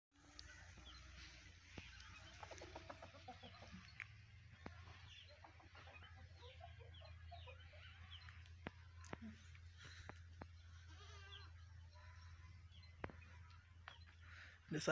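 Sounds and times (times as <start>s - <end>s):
small birds chirping: 0.2s - 14.9s
hen clucking: 1.7s - 9.7s.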